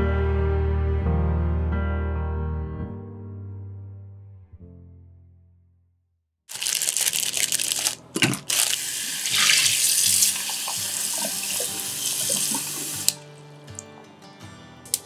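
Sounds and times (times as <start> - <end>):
hands rinsing mushrooms: 6.5 - 14.0
tap water splashing into metal bowl: 9.3 - 13.9.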